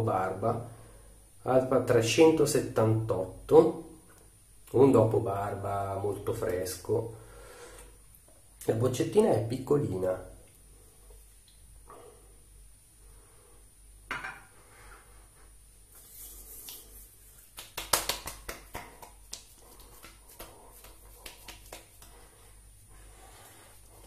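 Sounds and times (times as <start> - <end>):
hands rubbing: 15.9 - 24.0
slaps on cheeks: 17.4 - 22.2.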